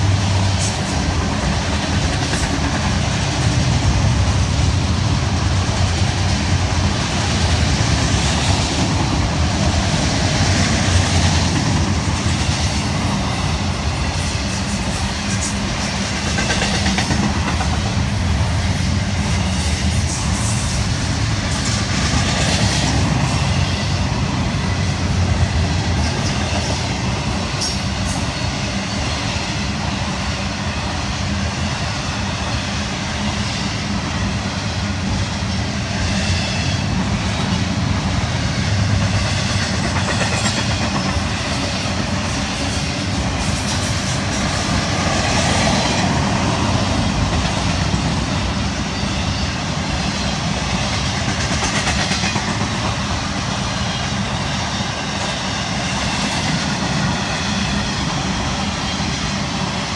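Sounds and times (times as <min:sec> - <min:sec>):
wheels clicking on rail: 0:00.0 - 0:23.6
freight train wheels rumbling on rail: 0:00.0 - 0:59.9.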